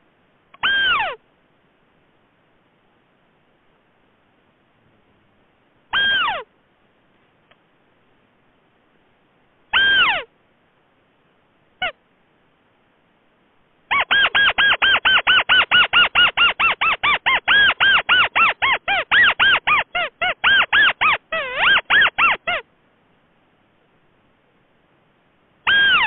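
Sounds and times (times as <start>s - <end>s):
recorded bird call: 0.5s - 1.2s, 5.9s - 6.5s, 9.7s - 10.3s, 11.8s - 12.0s, 13.9s - 22.7s, 25.6s - 26.0s.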